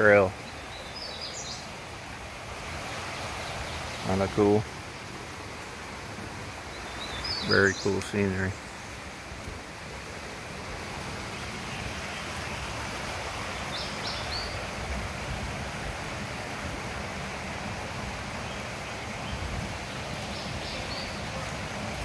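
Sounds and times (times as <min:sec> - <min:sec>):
creek water rushing over rocks: 0:00.0 - 0:22.0
bird chirping: 0:00.4 - 0:01.7, 0:06.7 - 0:08.9, 0:13.6 - 0:14.6, 0:18.4 - 0:21.4.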